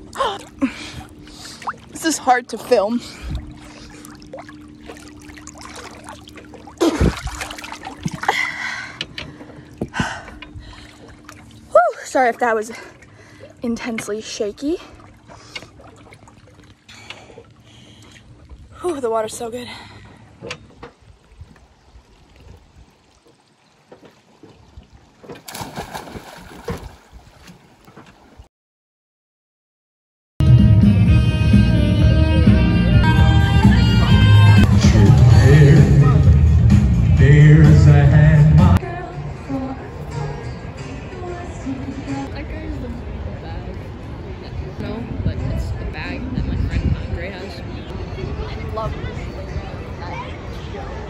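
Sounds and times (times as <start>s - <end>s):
water sloshing and splashing: 0.0s - 28.5s
loud splash and knock: 4.9s - 8.3s, 25.2s - 28.1s.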